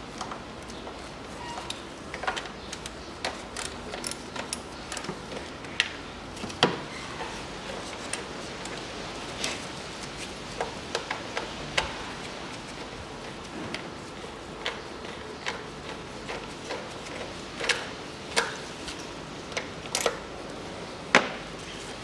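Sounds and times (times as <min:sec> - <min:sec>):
plastic parts clicking and knocking: 0:01.7 - 0:06.8.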